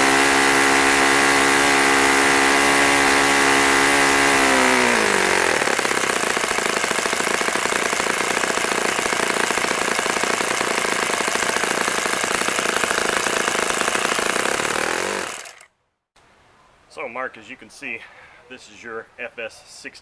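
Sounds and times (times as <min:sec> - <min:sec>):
model glow engine idling: 0:00.0 - 0:15.6.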